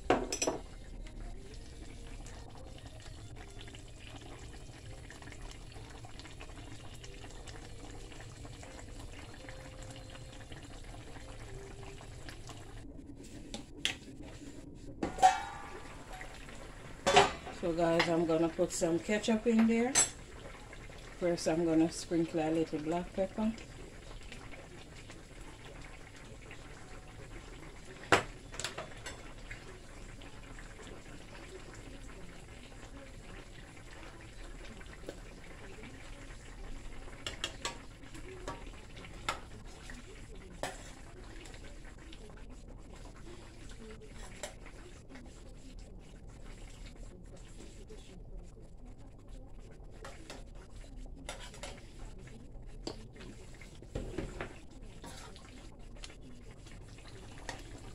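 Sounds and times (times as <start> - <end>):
stew bubbling in a pan: 0.0 - 57.9
spoon clinking on metal pan: 0.1 - 0.6, 15.0 - 15.8, 19.9 - 20.2.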